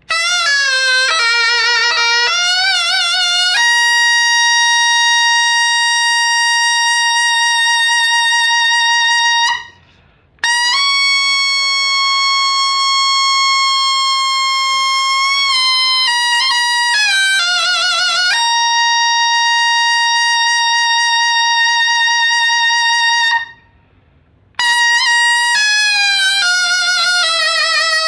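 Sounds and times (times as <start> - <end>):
shawm playing: 0.0 - 23.5, 24.6 - 28.0
player breathing: 9.8 - 10.4.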